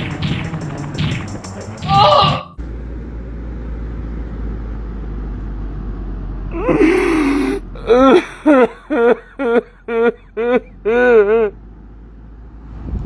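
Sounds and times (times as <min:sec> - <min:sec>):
woman crying and sobbing: 0:06.5 - 0:11.6
low rumble: 0:12.1 - 0:13.0.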